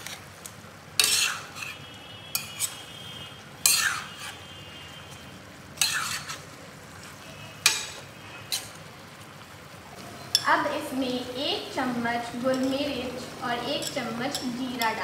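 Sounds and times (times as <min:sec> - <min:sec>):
low sizzle of frying: 0:00.0 - 0:15.0
spoon scraping metal pan: 0:01.0 - 0:03.0, 0:03.6 - 0:04.5, 0:05.8 - 0:08.8, 0:13.8 - 0:15.0.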